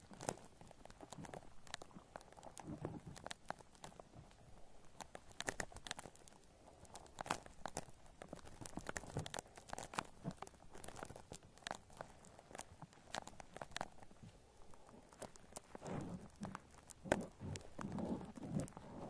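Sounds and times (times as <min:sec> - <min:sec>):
shaving foam crackling: 0:15.1 - 0:19.0.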